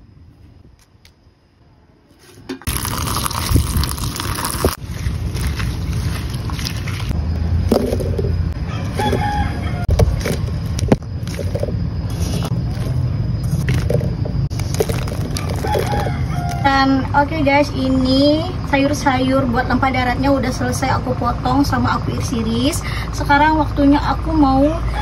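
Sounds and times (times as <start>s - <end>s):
rooster crowing: 8.6s - 10.2s, 15.3s - 17.0s.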